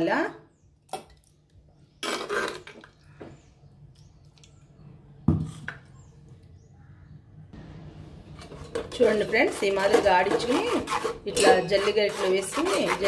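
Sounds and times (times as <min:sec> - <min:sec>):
spoon scraping clay pot: 0:01.9 - 0:03.0, 0:08.3 - 0:13.0.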